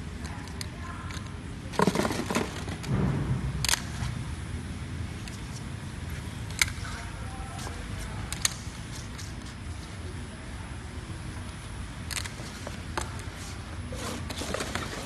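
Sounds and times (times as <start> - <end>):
steady low hum: 0.0 - 15.0
plastic boxes clicking and clattering: 1.1 - 3.0, 14.0 - 15.0.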